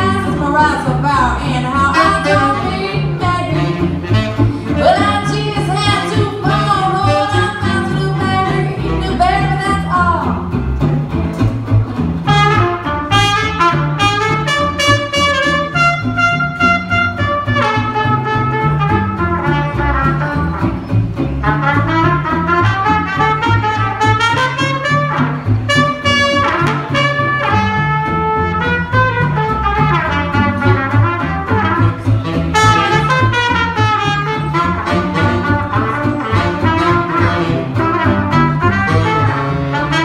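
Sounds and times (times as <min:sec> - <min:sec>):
woman singing: 0:00.0 - 0:03.9, 0:04.6 - 0:10.4
trumpet lead line: 0:00.0 - 0:10.3, 0:12.2 - 0:40.0
guitar: 0:00.0 - 0:40.0
walking upright bass: 0:00.0 - 0:40.0.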